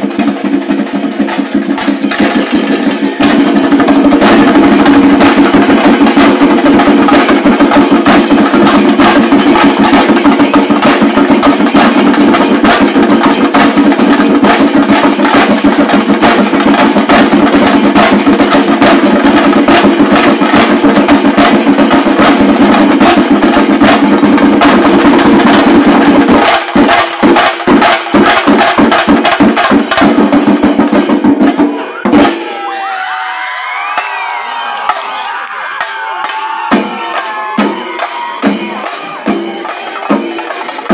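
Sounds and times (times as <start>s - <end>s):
cymbals: 0.0s - 33.1s, 33.8s - 40.9s
drums beaten fast with sticks: 0.0s - 40.9s
crowd cheering and shouting: 31.5s - 40.9s.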